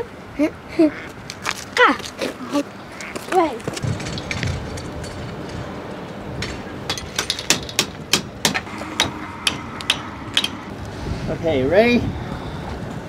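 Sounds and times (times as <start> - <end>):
sharp metal clicks and taps: 6.9 - 10.6.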